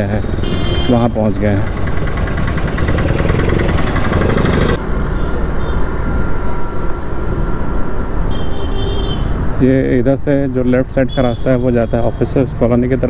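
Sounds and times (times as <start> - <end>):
motorcycle engine running: 0.0 - 5.8
street traffic: 0.0 - 13.0
wind and road noise: 0.0 - 13.0.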